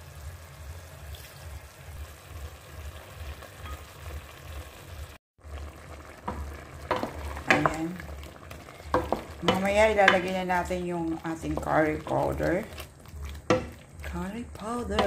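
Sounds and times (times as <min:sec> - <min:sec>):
food sizzling in a pot: 0:00.0 - 0:15.0
pot stirring knocks and scrapes: 0:06.2 - 0:15.0.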